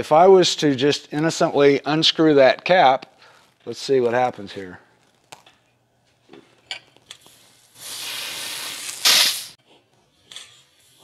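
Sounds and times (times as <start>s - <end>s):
pressurized air hissing: 7.7s - 9.6s.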